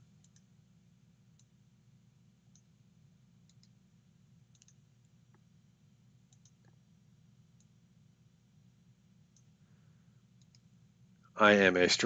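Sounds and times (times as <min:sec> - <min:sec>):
low steady hum: 0:00.0 - 0:12.0
computer mouse clicks: 0:00.2 - 0:00.5, 0:01.3 - 0:01.5, 0:02.5 - 0:02.7, 0:03.4 - 0:03.8, 0:04.5 - 0:05.4, 0:06.3 - 0:06.8, 0:09.3 - 0:09.5, 0:10.4 - 0:10.7.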